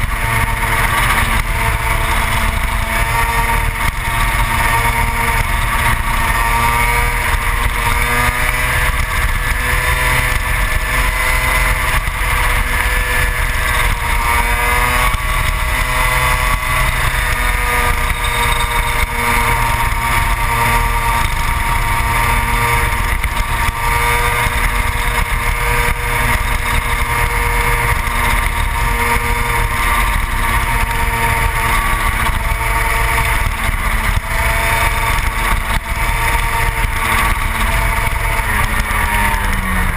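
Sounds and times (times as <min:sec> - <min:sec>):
two-stroke racing engine: 0:00.0 - 0:39.9.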